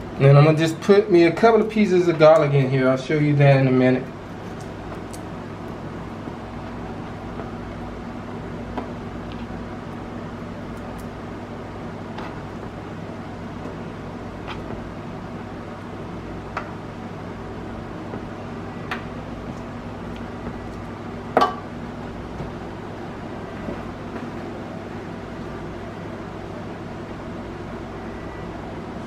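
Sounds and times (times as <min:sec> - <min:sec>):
room noise hum: 0:00.0 - 0:29.0
knock on metal pan: 0:21.4 - 0:21.6.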